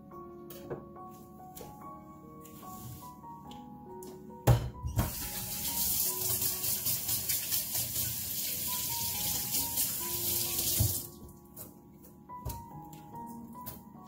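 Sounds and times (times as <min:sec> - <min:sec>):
kitchen tap running: 0:05.0 - 0:11.1.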